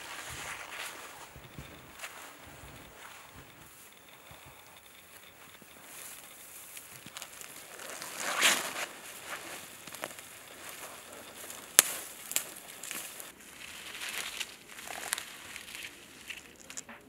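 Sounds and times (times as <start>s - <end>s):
rustling needles: 0.0s - 17.0s
twigs cracking and snapping: 0.0s - 17.0s.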